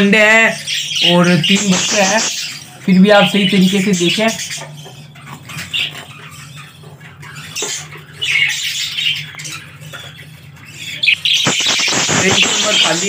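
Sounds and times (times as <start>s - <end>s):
budgerigars squawking and chattering: 0.0s - 13.0s.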